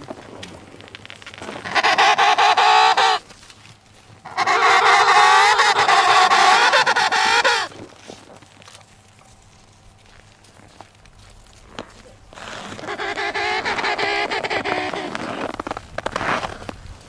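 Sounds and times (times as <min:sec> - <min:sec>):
penguin trumpet calls: 0:01.5 - 0:03.2, 0:04.2 - 0:07.7, 0:12.6 - 0:15.4.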